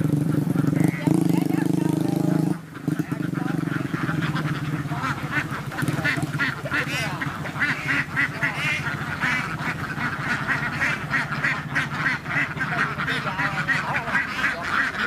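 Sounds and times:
ducks quacking: 0:00.0 - 0:15.0.

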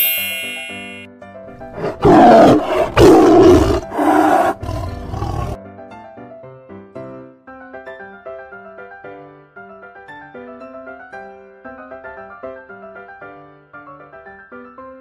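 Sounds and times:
light keyboard music: 0:00.0 - 0:02.5
lion roaring: 0:01.6 - 0:05.6.

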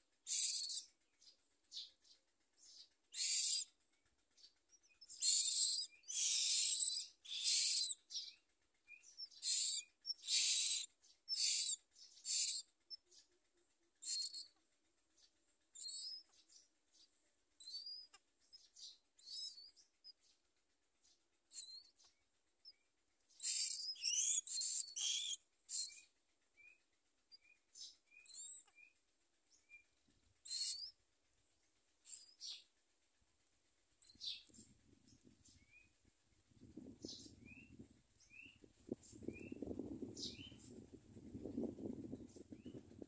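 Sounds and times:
nestlings squeaky begging calls: 0:00.2 - 0:00.9, 0:02.6 - 0:03.8, 0:04.4 - 0:08.4, 0:09.0 - 0:13.1, 0:14.0 - 0:14.6, 0:15.8 - 0:16.3, 0:17.6 - 0:19.8, 0:21.5 - 0:22.1, 0:23.3 - 0:26.1, 0:27.8 - 0:28.7, 0:30.4 - 0:31.0, 0:32.1 - 0:32.6.

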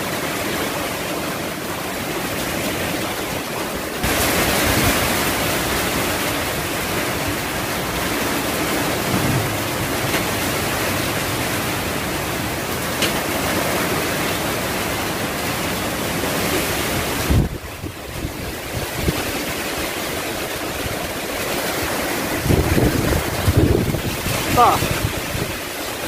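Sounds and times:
heavy rain and wind: 0:00.0 - 0:26.0
low bump: 0:08.8 - 0:10.8.

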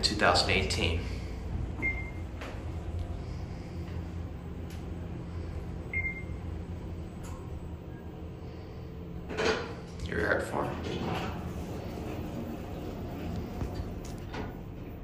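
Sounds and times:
elevator hum: 0:00.0 - 0:15.0.

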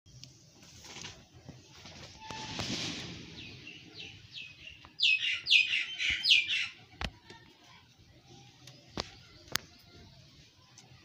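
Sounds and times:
small bird chirping: 0:03.4 - 0:06.9.

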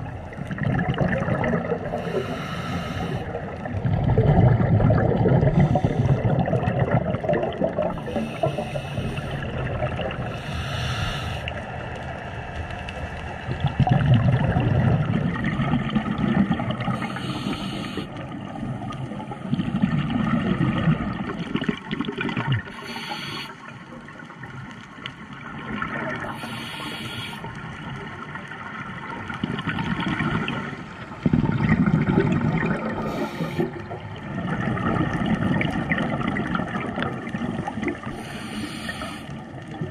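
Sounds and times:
underwater exhaled air bubbling: 0:00.0 - 0:39.9
regulator breathing hiss: 0:02.0 - 0:03.4, 0:05.5 - 0:06.2, 0:08.0 - 0:09.4, 0:10.3 - 0:11.6, 0:17.0 - 0:18.2, 0:22.7 - 0:23.7, 0:26.3 - 0:27.6, 0:33.0 - 0:33.8, 0:38.1 - 0:39.4.

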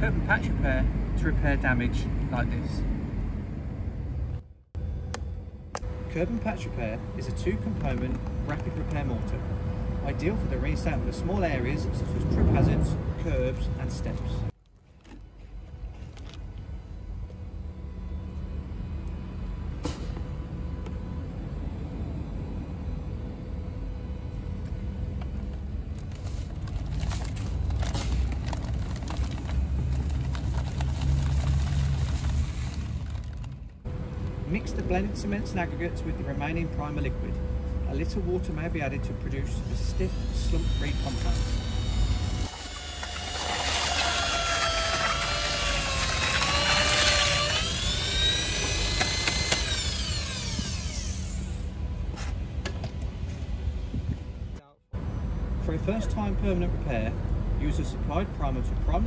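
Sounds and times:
steady low rumble: 0:00.0 - 0:42.5
dry mix pouring from paper sack: 0:26.0 - 0:33.7
power drill mixing mortar: 0:39.8 - 0:51.7.

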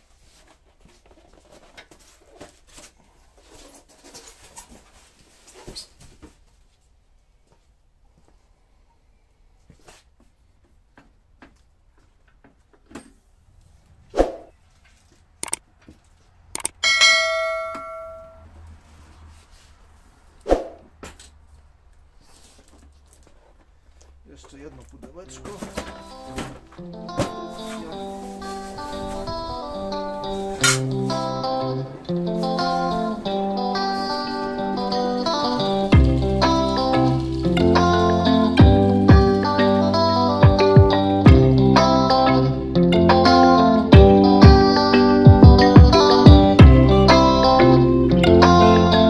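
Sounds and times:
foam squeaking and scraping: 0:03.5 - 0:06.0
metal clang and ringing: 0:16.8 - 0:18.5.

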